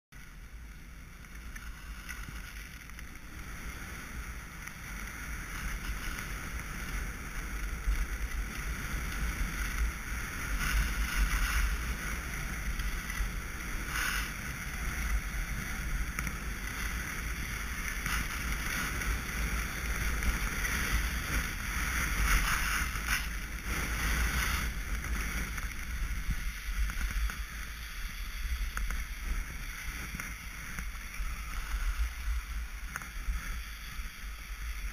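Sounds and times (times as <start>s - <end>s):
skis hissing over snow: 0.2s - 34.9s
wind on microphone: 0.4s - 34.9s.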